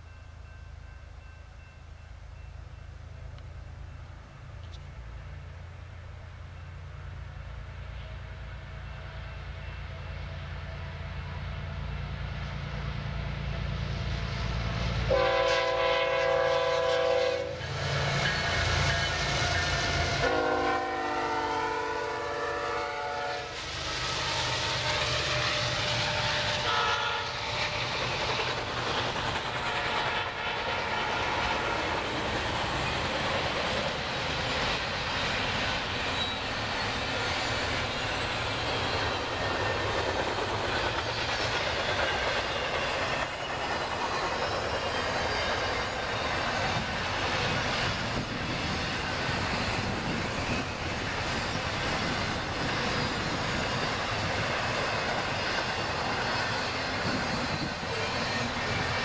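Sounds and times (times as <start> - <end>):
diesel locomotive rumble: 0.0 - 59.0
train air horn blasts: 15.1 - 27.5, 29.6 - 31.9
train wheels clattering on rails: 16.4 - 59.0.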